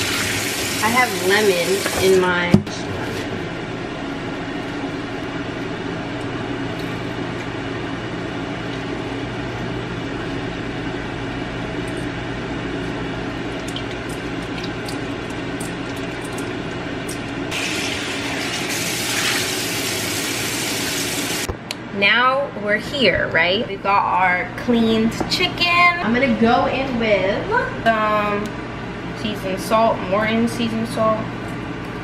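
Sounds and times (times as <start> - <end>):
air fryer fan humming: 0.0 - 32.0
water running into steel bowl: 17.5 - 21.5.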